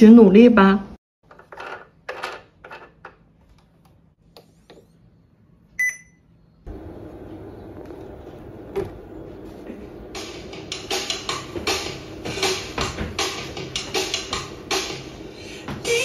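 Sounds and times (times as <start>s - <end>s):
cooling fan whirring hum: 2.7s - 16.0s
short electronic beep: 5.8s - 6.2s.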